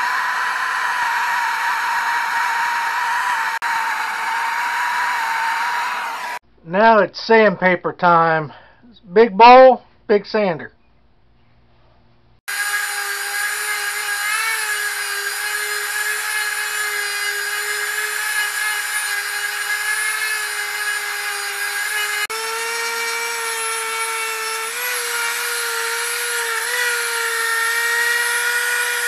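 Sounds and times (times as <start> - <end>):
orbital sander whining: 0.0 - 6.4, 12.5 - 29.0.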